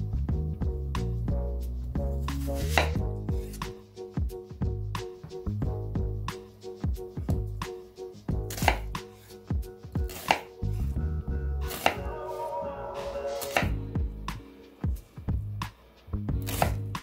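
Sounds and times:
knife slicing onion on wooden board: 2.3s - 3.8s, 7.3s - 11.0s, 11.7s - 12.4s, 13.3s - 13.8s, 16.4s - 17.0s.

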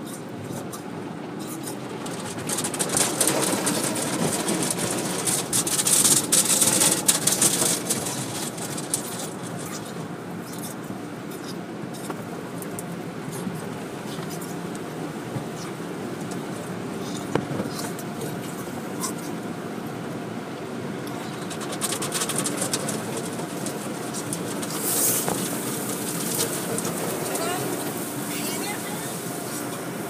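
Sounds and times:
low machinery hum: 0.0s - 30.0s
water spray and brushes on windshield: 0.1s - 12.6s, 21.4s - 30.0s
spray crackling on glass: 24.4s - 29.8s.

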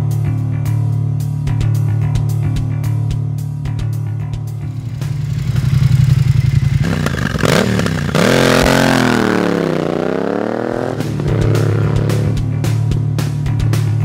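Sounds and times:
background music: 0.0s - 14.0s
motorcycle engine revving: 4.6s - 13.0s.

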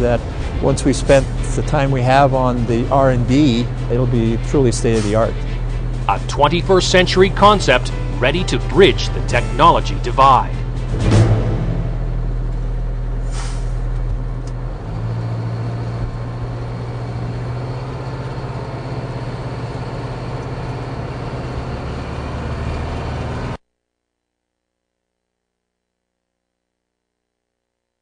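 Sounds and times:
truck diesel engine running: 0.0s - 23.6s
short hiss: 13.2s - 13.8s.

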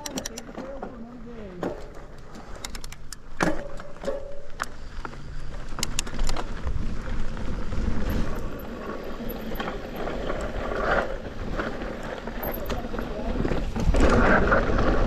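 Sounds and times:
sharp clicks: 0.0s - 0.5s, 2.2s - 3.3s, 5.7s - 6.4s
bike tyres on dirt rattling: 0.0s - 15.0s
wind rumble on microphone: 5.4s - 15.0s.

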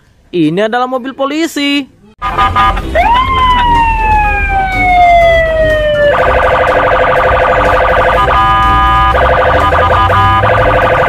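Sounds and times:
police siren wailing: 2.2s - 11.0s.

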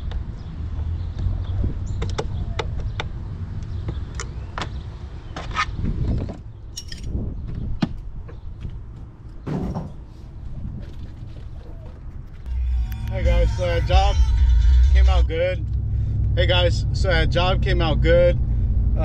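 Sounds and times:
metal tools clinking: 6.8s - 7.1s
steady low rumble: 12.1s - 19.0s.

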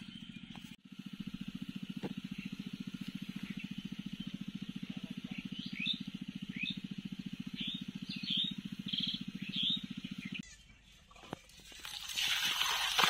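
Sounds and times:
low fast throbbing: 0.0s - 10.4s
small birds chirping: 0.0s - 11.1s.

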